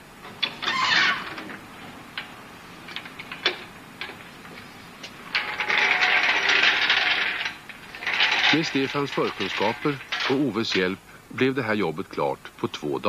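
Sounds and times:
floor jack clicking and rattling: 5.3 - 10.9.

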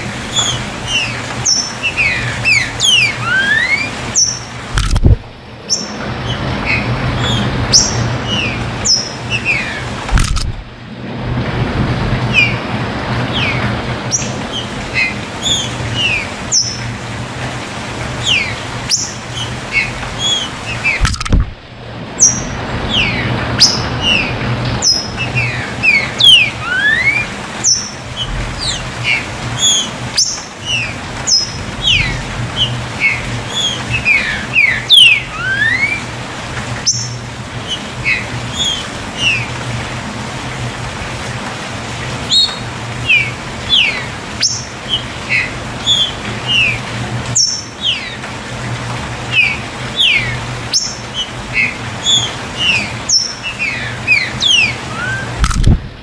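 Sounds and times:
rushing background noise: 0.0 - 56.0
bird whistling song: 0.3 - 4.5, 6.7 - 9.8, 13.4 - 16.8, 18.2 - 21.1, 22.2 - 36.0, 36.8 - 39.5, 42.3 - 46.8, 47.4 - 48.2, 49.3 - 55.4.

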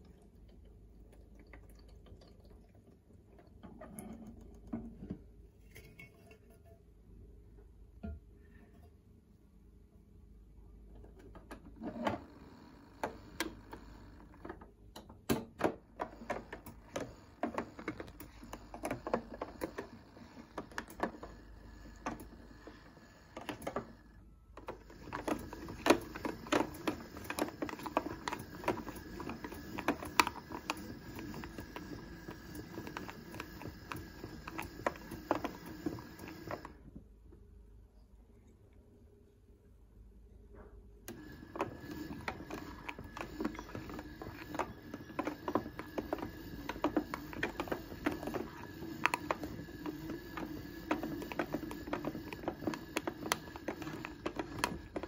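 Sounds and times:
toy washing machine drum humming: 0.0 - 5.3, 10.9 - 37.0, 41.1 - 55.0
irregular clicks and rattles: 11.0 - 36.9, 41.1 - 55.0.

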